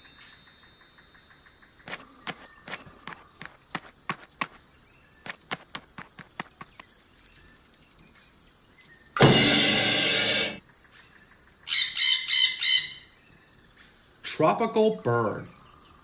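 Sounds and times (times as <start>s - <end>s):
light footstep taps: 1.9s - 4.6s, 5.3s - 6.9s.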